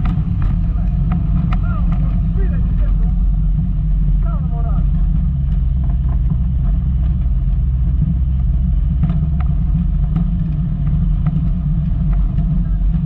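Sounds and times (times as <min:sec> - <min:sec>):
car driving over rough ground: 0:00.0 - 0:13.0.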